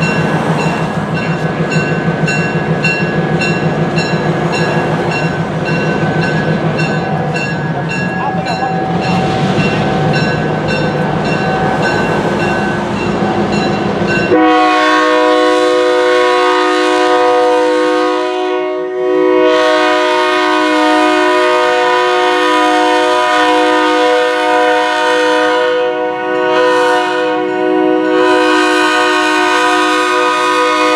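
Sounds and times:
locomotive air horn: 14.3 - 30.9.

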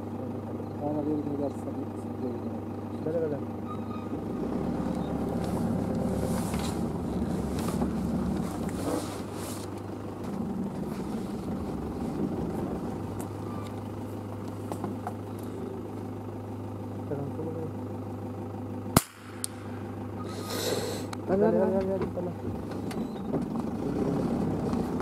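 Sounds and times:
truck engine running: 0.0 - 25.0
vehicle clattering and knocking: 3.5 - 8.9, 9.7 - 16.2, 21.5 - 25.0.

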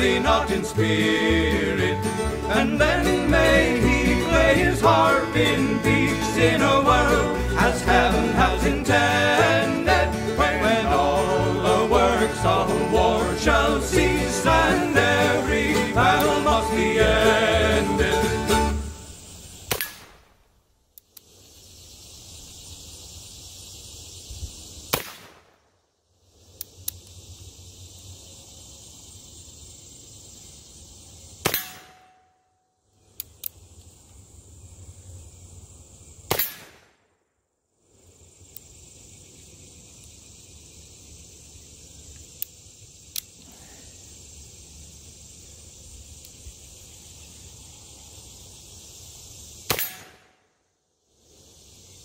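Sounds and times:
faint clicks: 20.9 - 21.3, 26.5 - 27.2, 33.1 - 33.9, 42.1 - 43.5, 46.2 - 46.4
revolver gunshots: 24.9 - 25.6, 36.3 - 37.0, 49.7 - 50.4.

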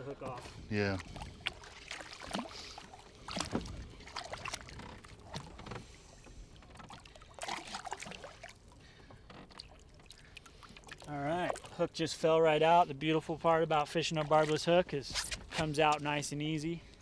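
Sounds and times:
water splashing and sloshing: 0.0 - 17.0.

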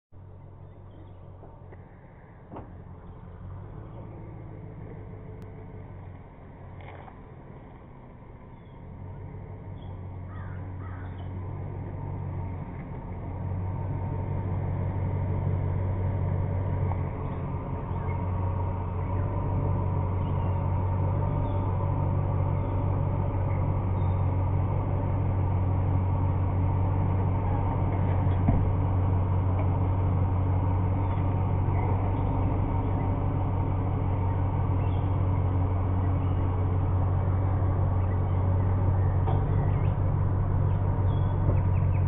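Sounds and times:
truck engine running at low revs: 0.1 - 42.0.

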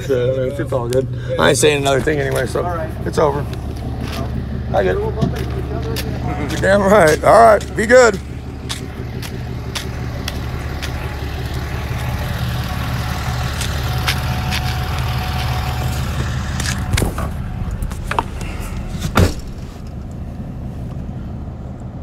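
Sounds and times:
vehicle engine idling: 0.0 - 22.0
knocks and clatter climbing in: 13.1 - 21.1
truck door shutting: 16.1 - 20.0.

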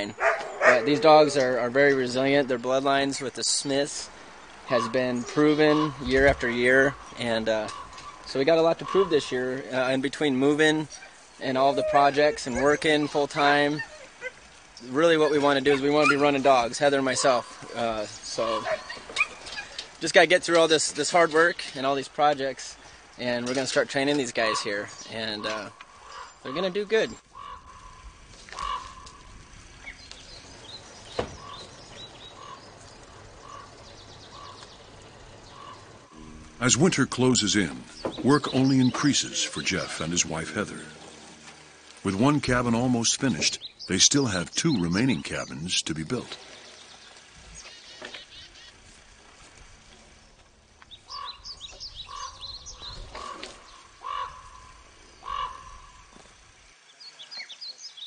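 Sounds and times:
crow cawing: 6.9 - 9.2, 25.4 - 26.7, 27.3 - 29.3, 32.3 - 32.7, 33.4 - 34.6, 35.5 - 35.9, 51.1 - 51.5, 52.1 - 56.1
high falling bird chirps: 24.4 - 49.1, 50.1 - 58.0
small bird chirping: 50.2 - 56.1.

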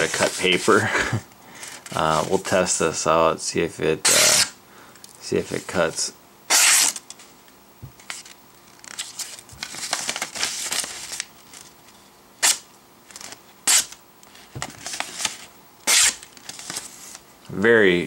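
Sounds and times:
knife slicing paper card: 6.5 - 7.0, 15.2 - 16.2
paper rustling: 8.0 - 11.7, 13.1 - 17.2.

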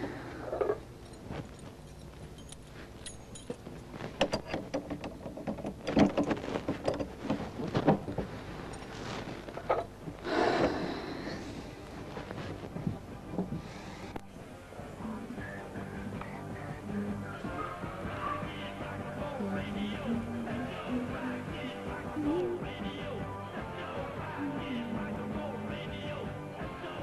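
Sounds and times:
clicks knocks and rattles: 0.6 - 8.3.

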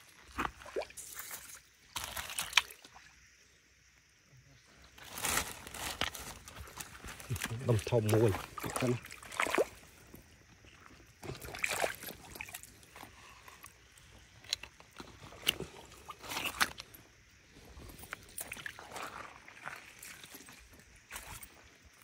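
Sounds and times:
footsteps on wet muddy gravel: 5.0 - 21.8.

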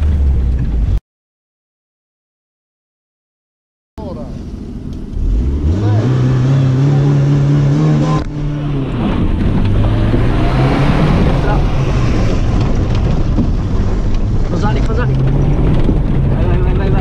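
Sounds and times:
car engine revving from inside: 5.1 - 12.8.

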